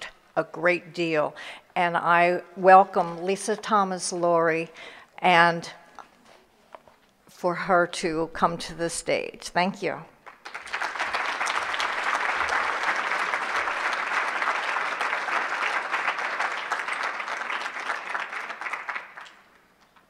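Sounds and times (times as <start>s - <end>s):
audience applause: 10.2s - 19.6s.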